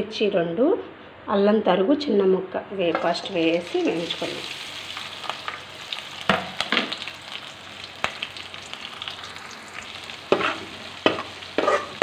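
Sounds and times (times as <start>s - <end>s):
chillies sizzling in hot oil: 2.9s - 12.0s
utensil knocking on pan: 10.3s - 12.0s.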